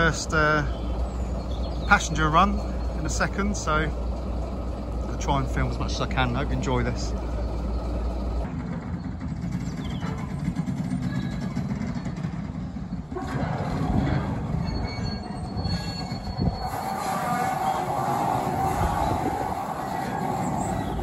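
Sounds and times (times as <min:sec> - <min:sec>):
diesel locomotive engine rumble: 0:00.0 - 0:21.0
train wheel noise: 0:00.0 - 0:21.0
wheels squealing on curve: 0:09.8 - 0:21.0.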